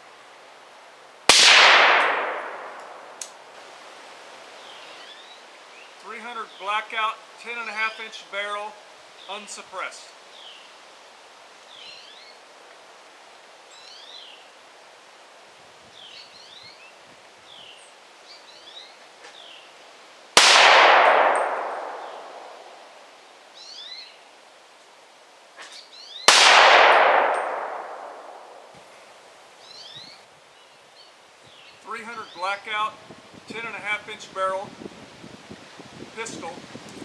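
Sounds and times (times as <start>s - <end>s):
loud gunshots with echo: 1.3s - 3.2s, 20.4s - 22.8s, 26.3s - 28.7s
birds chirping faintly: 4.5s - 10.8s, 21.4s - 24.9s, 27.4s - 34.2s.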